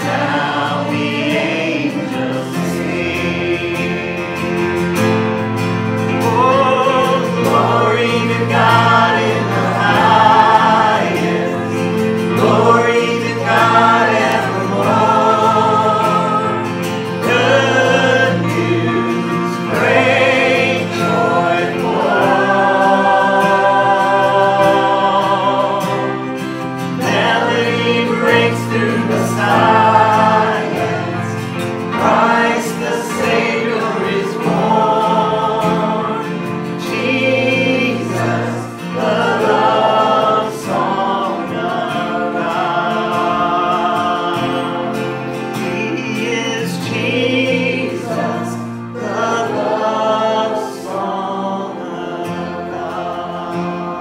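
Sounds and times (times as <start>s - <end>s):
acoustic guitar: 0.0s - 54.0s
keyboard: 0.0s - 54.0s
man singing: 6.1s - 26.4s, 39.5s - 48.6s.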